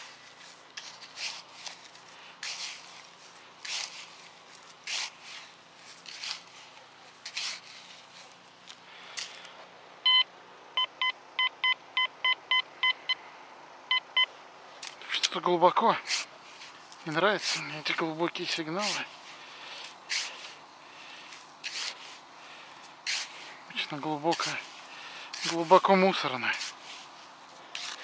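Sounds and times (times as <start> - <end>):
sand scooped and flung: 0.0 - 8.4, 15.8 - 28.0
metal detector beeps: 10.0 - 13.2, 13.9 - 14.3.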